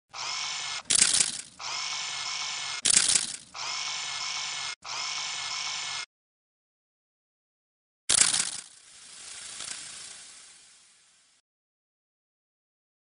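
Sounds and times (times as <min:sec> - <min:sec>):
mechanical whirr of camera motor: 0:00.1 - 0:06.1.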